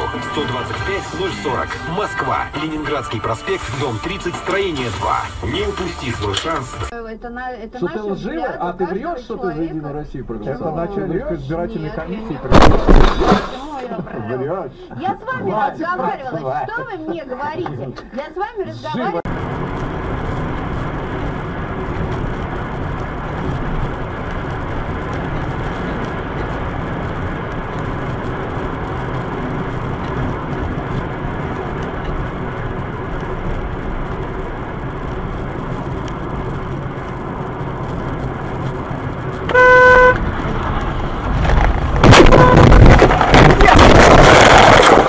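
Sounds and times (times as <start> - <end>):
car engine and road noise: 0.0 - 45.0
rough crackling noise: 12.4 - 13.8, 19.3 - 45.0
car horn: 39.4 - 40.3, 42.0 - 43.0.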